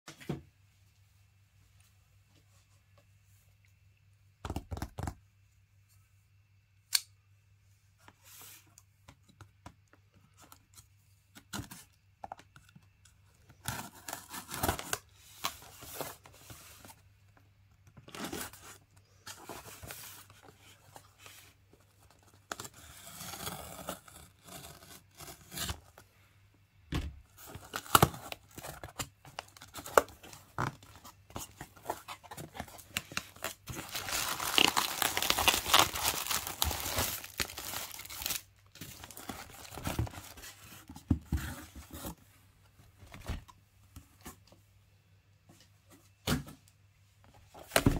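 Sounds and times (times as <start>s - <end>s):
cardboard crinkling and rustling: 27.2s - 43.5s
packing tape and cardboard tearing: 31.8s - 40.4s.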